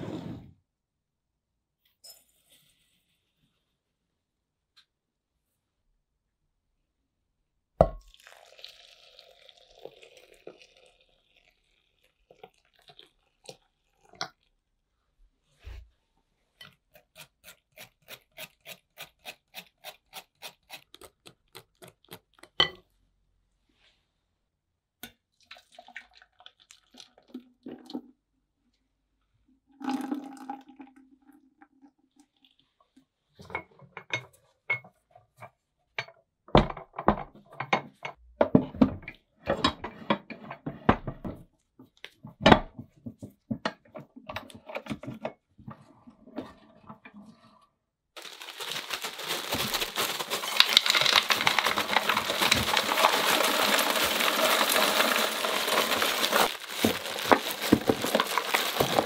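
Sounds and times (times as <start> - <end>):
liquid pouring into metal canister: 8.0 - 14.5, 29.8 - 31.4
ice cubes clattering into tub: 48.2 - 59.0.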